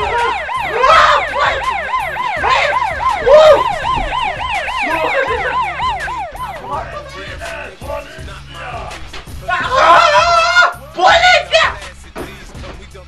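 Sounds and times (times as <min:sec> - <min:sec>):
police siren yelp: 0:00.0 - 0:07.8
low music beat: 0:00.0 - 0:13.0.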